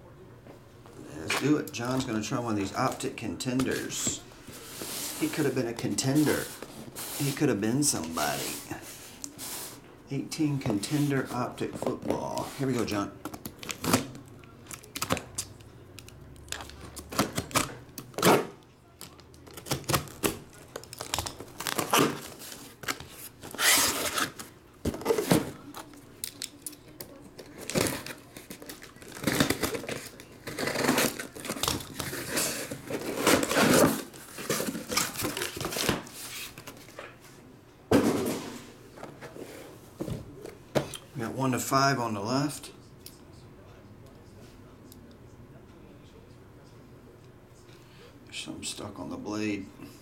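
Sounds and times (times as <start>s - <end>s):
cardboard scraping and rustling: 27.6s - 36.9s.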